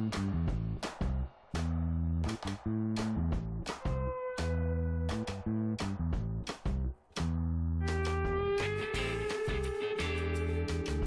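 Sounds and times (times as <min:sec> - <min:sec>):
low held bass notes: 0:00.0 - 0:11.0
sustained guitar-like note: 0:07.8 - 0:10.9.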